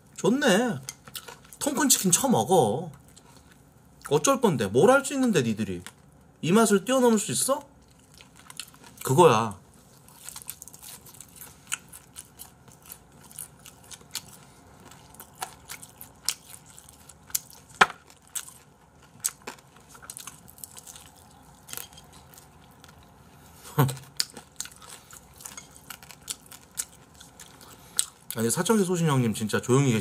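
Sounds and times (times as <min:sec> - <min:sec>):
fried chicken crunching: 0:07.8 - 0:23.2, 0:23.8 - 0:28.4.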